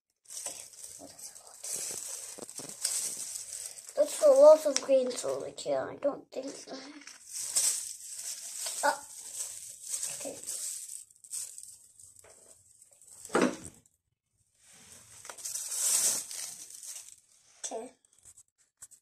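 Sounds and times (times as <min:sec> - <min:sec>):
thin plastic crinkling: 0:00.2 - 0:05.5, 0:06.4 - 0:13.8, 0:15.2 - 0:17.4.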